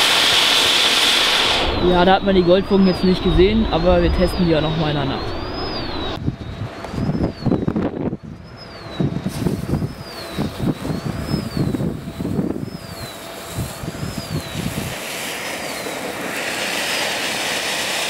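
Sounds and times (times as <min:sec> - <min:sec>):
firework fountain hissing: 0:00.0 - 0:04.2, 0:09.3 - 0:18.0
wind buffeting microphone: 0:01.5 - 0:15.1.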